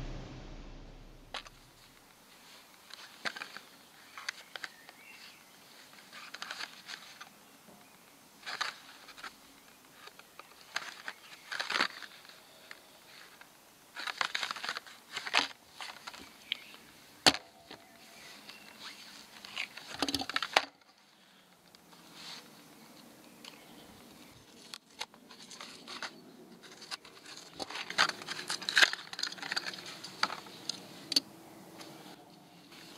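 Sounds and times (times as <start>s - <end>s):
plastic blister pack crinkling: 14.0s - 16.8s.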